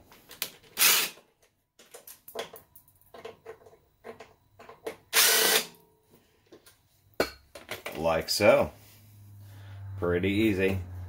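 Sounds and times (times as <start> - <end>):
cordless drill burst: 0.8 - 1.2, 5.1 - 5.7.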